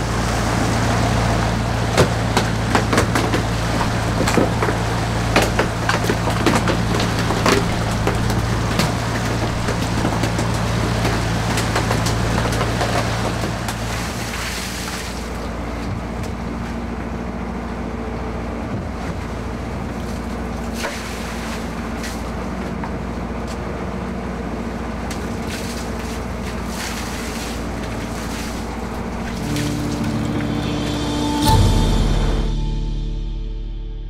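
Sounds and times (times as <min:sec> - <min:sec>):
water rushing: 0:00.0 - 0:15.6, 0:25.4 - 0:32.4
wind: 0:00.0 - 0:33.4
boat engine running: 0:00.0 - 0:34.0.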